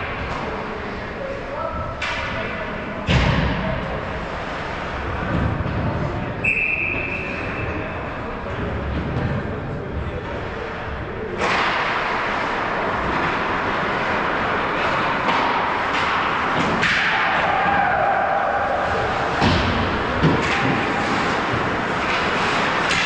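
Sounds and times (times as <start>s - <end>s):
skates on ice rink: 0.0s - 23.0s.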